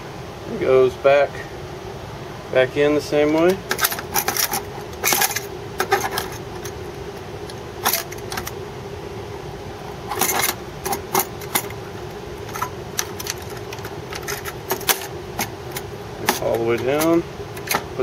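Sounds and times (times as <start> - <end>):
steady low hum: 0.0 - 18.0
metallic clicks and clatters: 3.3 - 6.8, 7.5 - 8.6, 10.1 - 11.8, 12.4 - 17.9.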